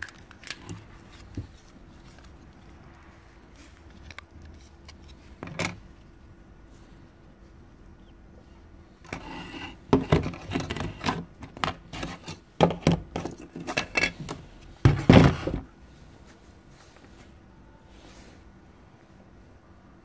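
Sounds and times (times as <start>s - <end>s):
plastic parts clicking and knocking: 9.9s - 15.7s
thumps on tiled floor: 14.8s - 15.7s.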